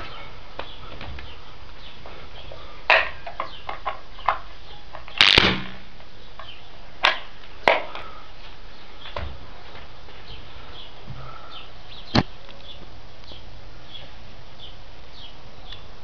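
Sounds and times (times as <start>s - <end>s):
headphone pops and crackles: 5.1s - 5.8s
brief electrical buzz: 5.2s - 5.8s.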